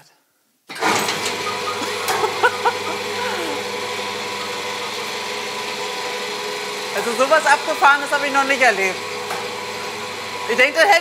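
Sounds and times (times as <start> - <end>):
electric hoist motor humming: 0.7 - 11.0.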